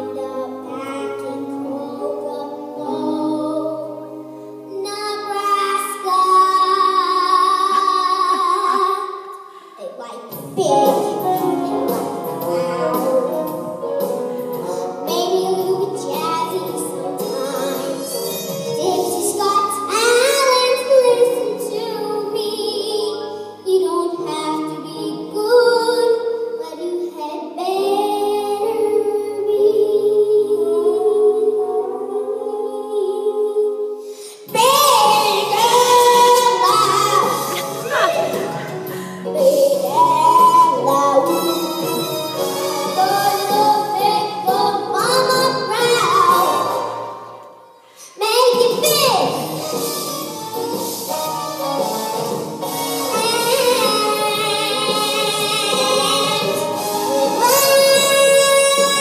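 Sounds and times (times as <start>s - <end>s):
girl singing: 0.0s - 14.0s, 14.6s - 46.9s, 48.0s - 49.4s, 53.0s - 59.0s
instrumental accompaniment: 10.3s - 25.6s, 34.4s - 59.0s.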